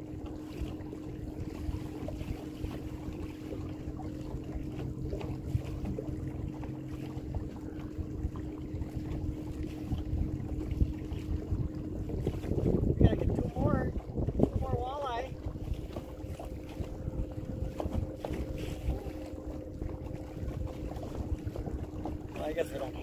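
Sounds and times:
boat motor humming: 0.0 - 23.0
wind noise on microphone: 4.6 - 23.0.

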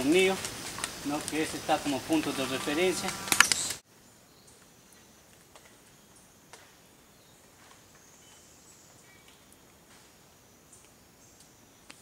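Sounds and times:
high-pitched insect buzz: 1.7 - 3.8.

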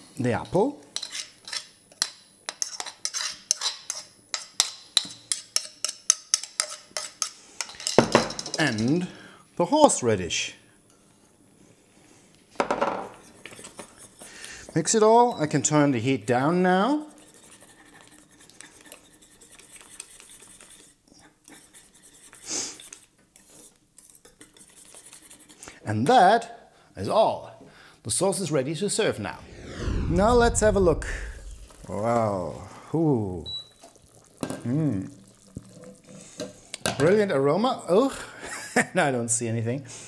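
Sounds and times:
utensil scraping saucepan: 1.0 - 1.7, 2.5 - 4.7
utensil swish: 29.3 - 32.7.

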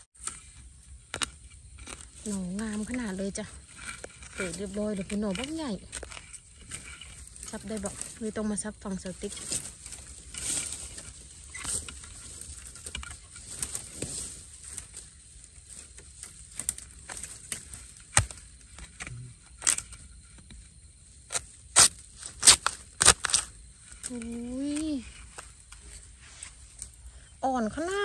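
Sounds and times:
spade chopping into soil: 16.6 - 18.4.

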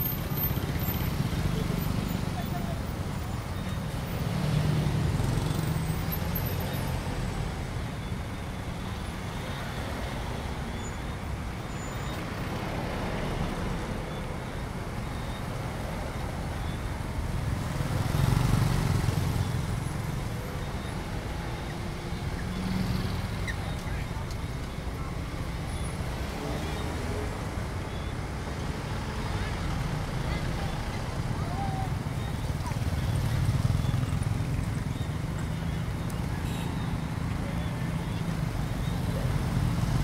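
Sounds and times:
hum of engines and tyres: 0.0 - 40.0
motorbikes and scooters passing: 17.3 - 24.2, 28.7 - 40.0.

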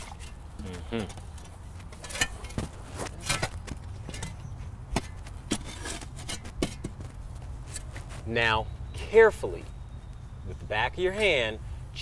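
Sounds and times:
metal shovel knocking on stones: 2.0 - 7.1.

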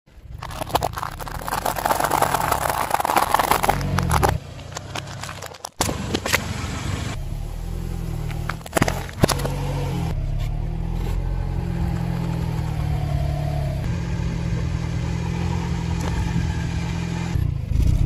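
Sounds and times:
car engine humming: 0.1 - 17.8
tyre crunching dry pasta: 0.4 - 5.8.

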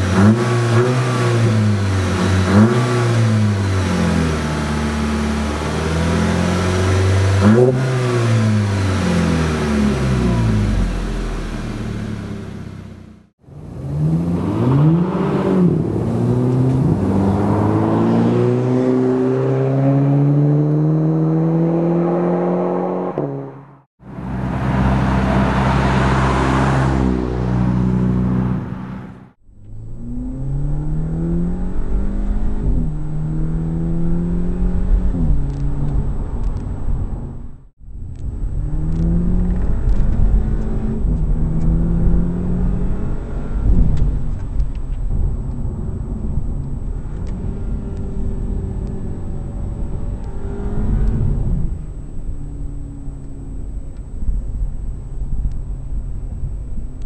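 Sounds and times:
car exhaust accelerating: 0.0 - 57.0
car passing by: 14.0 - 29.3.

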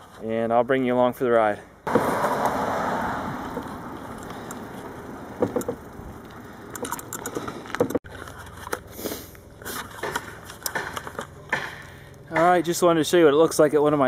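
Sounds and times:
bike clicks and rattles: 3.4 - 13.6.

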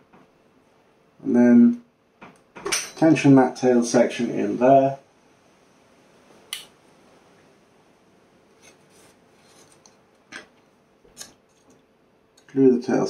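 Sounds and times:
rubbing and scraping of wood: 8.6 - 11.8.

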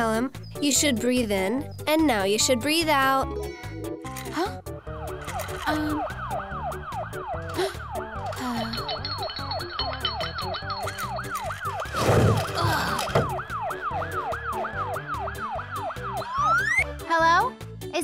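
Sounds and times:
cartoon music with bass: 0.0 - 18.0
siren yelping: 4.8 - 11.9, 12.6 - 17.0.

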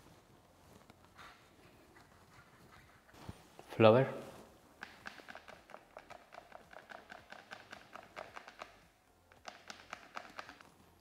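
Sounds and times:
flour shaker tapping: 4.8 - 10.6.

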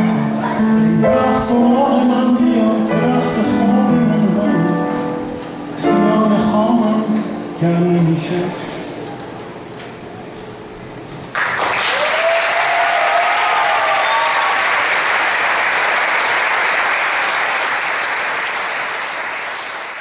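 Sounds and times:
audience applauding: 11.3 - 20.0
person cheering: 11.9 - 14.9.

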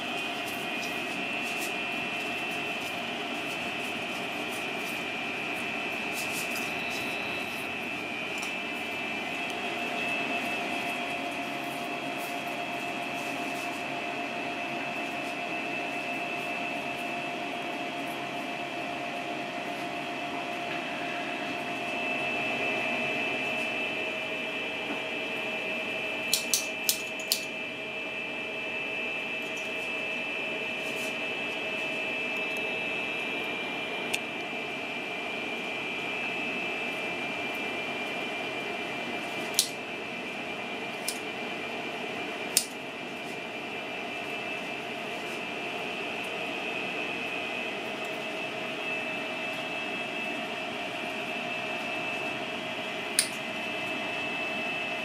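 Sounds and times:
machine hum with high whine: 0.0 - 55.0
scissors snipping candy: 26.3 - 27.5.

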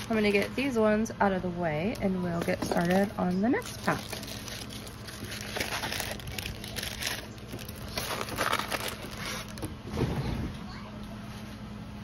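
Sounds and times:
plastic packaging crinkling: 0.0 - 0.7, 2.4 - 9.8.

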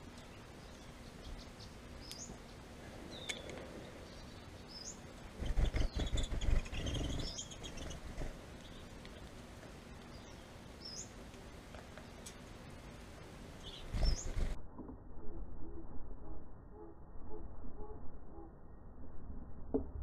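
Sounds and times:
finches chirping: 0.2 - 8.9, 13.6 - 14.6
bird wings fluttering: 5.4 - 9.4, 13.7 - 14.6.

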